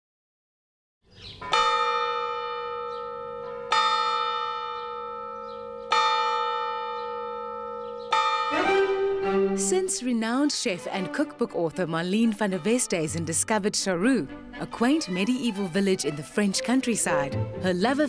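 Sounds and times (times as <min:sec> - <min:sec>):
church bell tolling: 0:01.4 - 0:10.7.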